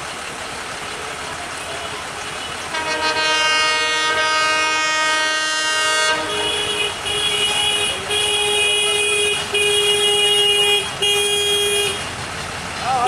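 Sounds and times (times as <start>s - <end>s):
locomotive air horn blasts: 1.7s - 12.2s.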